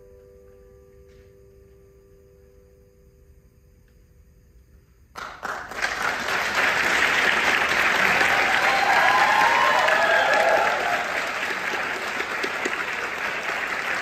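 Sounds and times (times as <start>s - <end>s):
audience applause: 5.2s - 14.0s
audience cheer: 6.8s - 14.0s.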